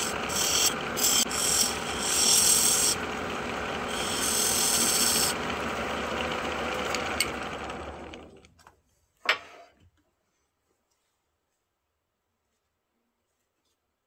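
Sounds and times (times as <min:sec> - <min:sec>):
file rasping on spinning wood: 0:00.0 - 0:08.2
wood lathe running: 0:00.0 - 0:08.5.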